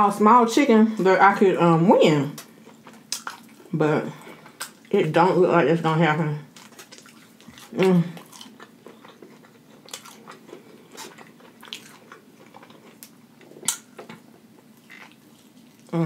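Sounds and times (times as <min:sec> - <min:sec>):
biting and chewing: 0:06.5 - 0:16.0
crackly crunches: 0:06.5 - 0:16.0.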